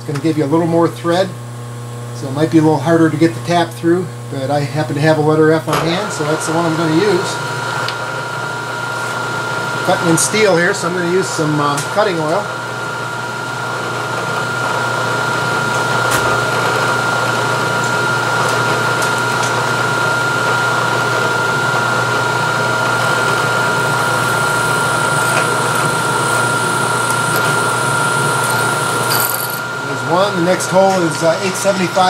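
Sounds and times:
milling machine spindle whine: 0:00.0 - 0:32.0
drill cutting steel: 0:05.9 - 0:08.0, 0:21.9 - 0:32.0.

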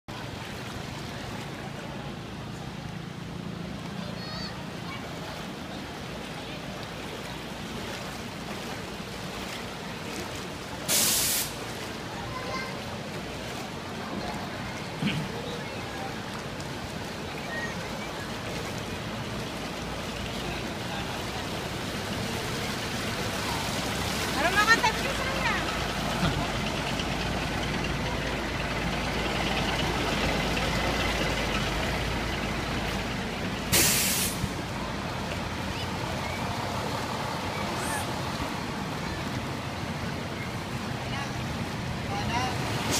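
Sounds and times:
floodwater sloshing from wading: 0:00.1 - 0:42.9
loud hissing burst: 0:10.9 - 0:11.6, 0:33.7 - 0:34.5
diesel truck engine running: 0:18.9 - 0:40.7.

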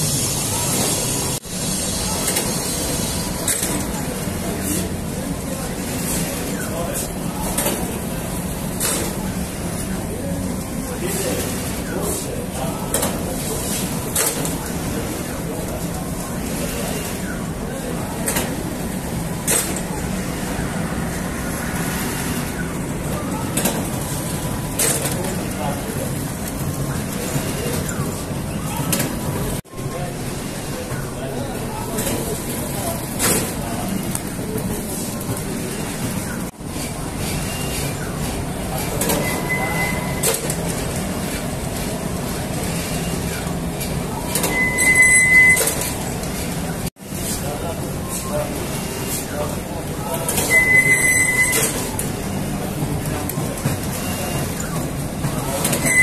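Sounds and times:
bakery machinery running: 0:00.0 - 0:56.0
high squeal: 0:44.4 - 0:45.8, 0:50.4 - 0:51.7.

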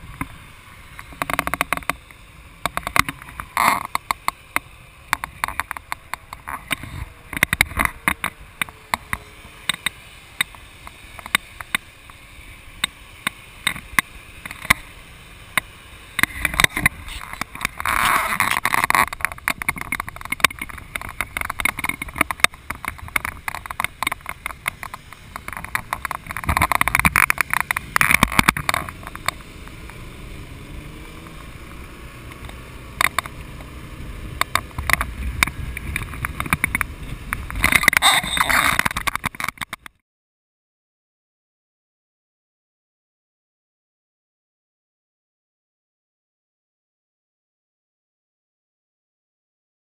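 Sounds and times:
wind rushing on microphone: 0:05.2 - 0:09.3, 0:16.2 - 0:39.6
wind buffeting pops: 0:16.2 - 0:40.0.

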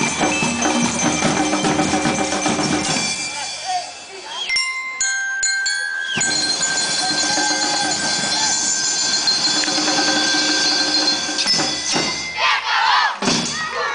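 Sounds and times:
handheld xylophone chord ringing: 0:02.1 - 0:12.4
crowd murmur: 0:06.2 - 0:13.9
children shouting: 0:06.4 - 0:08.8, 0:12.0 - 0:13.9.

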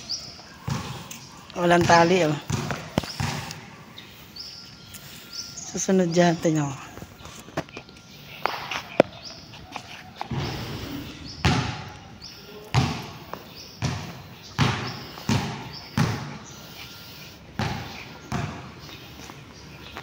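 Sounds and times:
footsteps on concrete: 0:00.2 - 0:05.9, 0:06.5 - 0:20.0.

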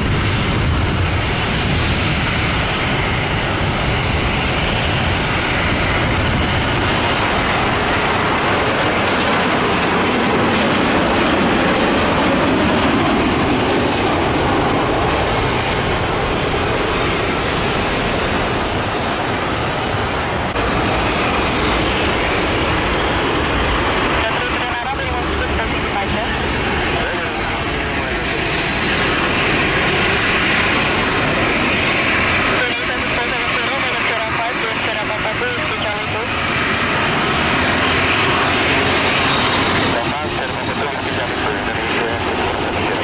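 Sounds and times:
wind rumble on microphone: 0:00.0 - 0:09.0
high turbine whine: 0:00.0 - 0:43.0
jet engine noise: 0:00.0 - 0:43.0.

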